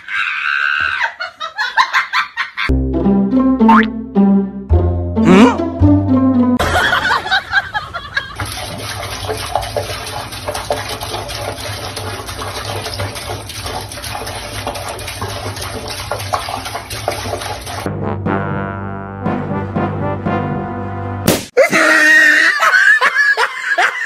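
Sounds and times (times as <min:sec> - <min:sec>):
tap water splashing into sink: 0:08.4 - 0:17.9.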